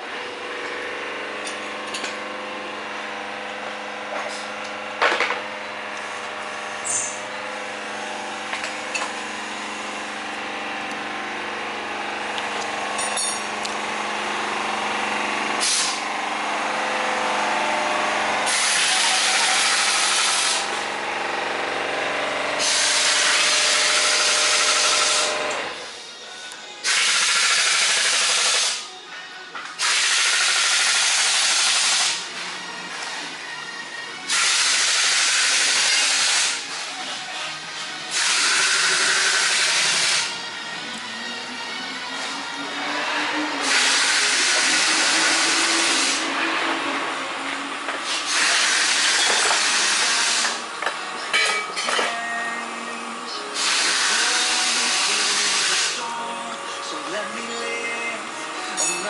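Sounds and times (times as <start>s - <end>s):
compressed air hissing: 15.6s - 16.0s, 18.4s - 20.7s, 22.6s - 25.3s, 26.8s - 27.5s, 43.6s - 46.3s, 48.0s - 50.6s, 53.5s - 56.0s
loud hissing bursts: 53.6s - 56.0s
metallic clinks: 58.8s - 59.0s.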